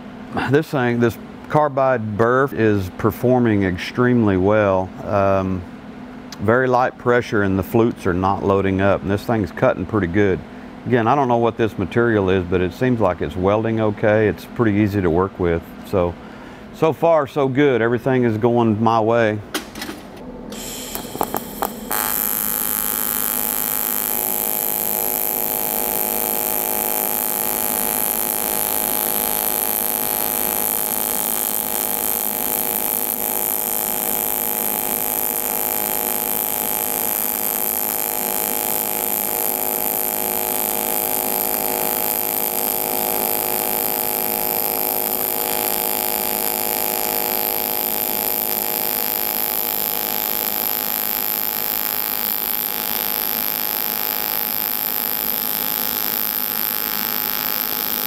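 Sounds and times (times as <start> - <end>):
welding arc steady tone: 20.5 - 58.0.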